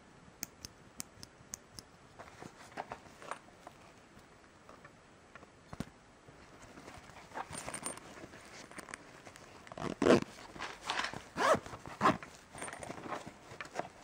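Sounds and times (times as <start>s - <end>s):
fabric case rustling and scraping: 2.2s - 4.0s, 6.4s - 14.0s.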